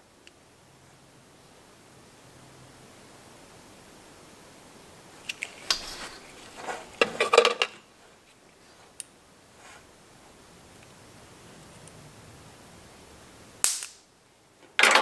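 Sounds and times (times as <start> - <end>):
sharp clicks of test clips: 5.2 - 6.1, 13.6 - 14.1.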